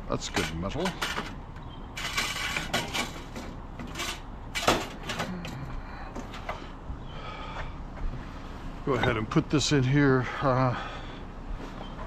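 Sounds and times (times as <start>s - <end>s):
scrap metal clanking and rattling: 0.1s - 6.6s.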